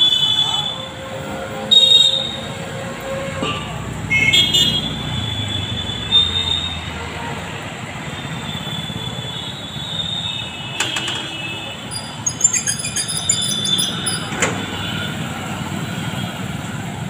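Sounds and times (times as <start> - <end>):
thin high squeal: 11.9 - 14.3
chirpy high tones: 12.0 - 14.2.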